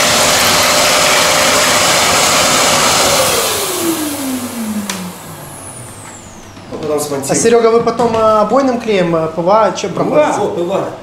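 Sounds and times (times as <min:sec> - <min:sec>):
angle grinder running: 0:00.0 - 0:06.1
grinder winding down whine: 0:00.0 - 0:06.6
vacuum noise: 0:00.0 - 0:07.8.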